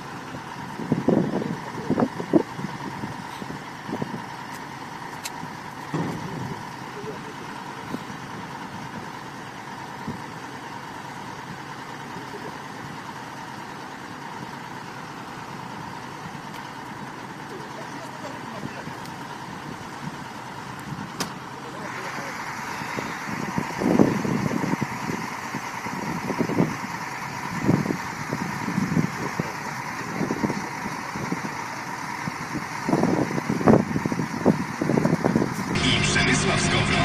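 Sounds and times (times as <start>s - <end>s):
diesel engine idling: 0.0s - 37.0s
indistinct voices: 35.8s - 37.0s.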